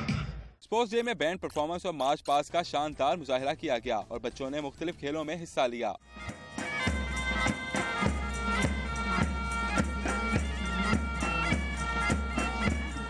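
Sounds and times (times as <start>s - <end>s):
bagpipes playing melody: 6.1s - 13.0s.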